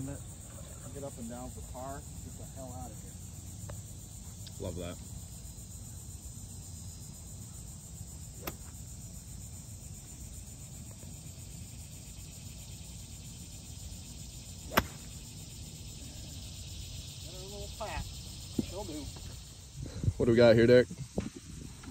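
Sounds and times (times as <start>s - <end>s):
insects humming: 0.0s - 21.9s
golf club striking ball: 8.4s - 8.8s, 14.7s - 15.2s.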